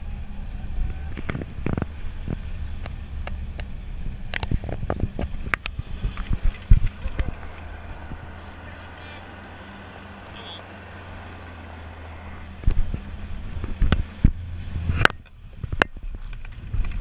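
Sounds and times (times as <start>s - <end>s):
truck engine droning: 0.0s - 17.0s
truck body rattling and clanking: 1.2s - 8.3s, 12.6s - 17.0s.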